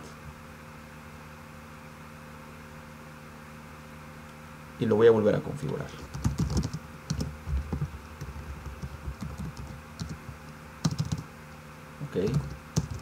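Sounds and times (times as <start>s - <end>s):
keyboard typing: 6.0s - 11.3s, 12.2s - 13.0s.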